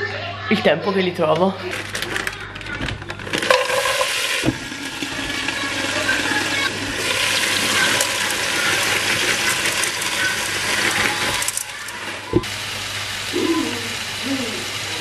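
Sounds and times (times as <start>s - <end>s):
peas poured into pan: 1.7s - 12.3s
mushrooms sizzling in hot oil: 3.2s - 15.0s.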